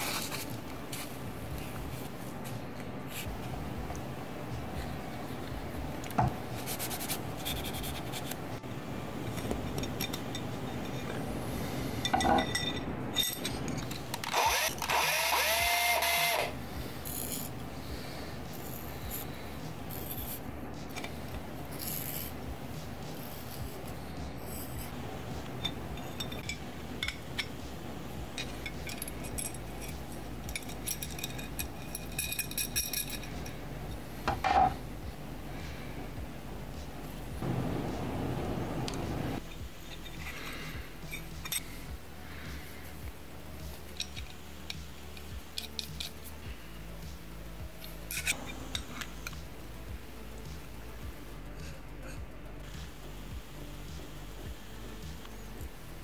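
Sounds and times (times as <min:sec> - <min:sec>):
rubbing with a squeak: 0:06.5 - 0:08.4
metal parts clicking on wood: 0:43.7 - 0:46.3.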